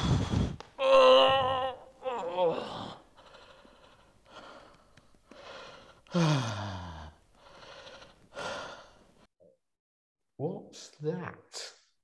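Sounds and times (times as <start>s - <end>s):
man breathing heavily: 0.0s - 0.6s, 2.5s - 9.3s
man groaning: 0.8s - 3.0s.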